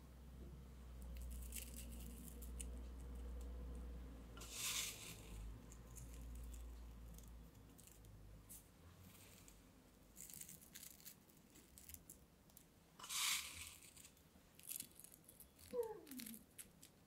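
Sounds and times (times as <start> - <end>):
crunch: 1.1 - 2.8, 9.2 - 17.0
dried fruit crackling: 4.4 - 17.0.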